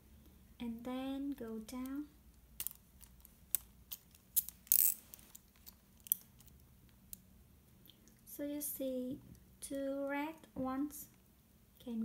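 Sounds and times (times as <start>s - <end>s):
plastic puzzle pieces clicking: 2.6s - 7.2s.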